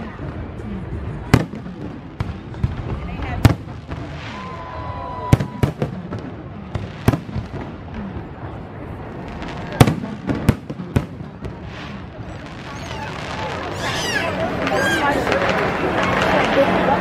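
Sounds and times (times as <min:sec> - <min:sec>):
fireworks bangs: 0:00.2 - 0:17.0
firework whistle: 0:12.2 - 0:15.4.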